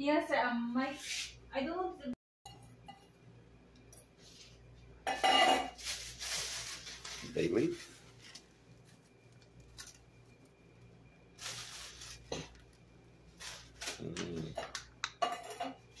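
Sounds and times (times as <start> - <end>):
leaves rustling into a wok: 5.6 - 9.0, 11.4 - 12.6.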